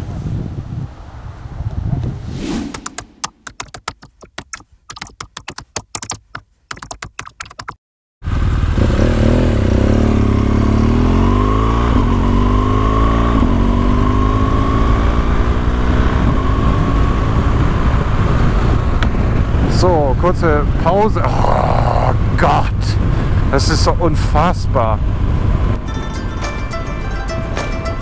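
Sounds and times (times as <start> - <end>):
keyboard typing clicks: 2.7 - 7.8
motorcycle engine accelerating: 8.2 - 19.6.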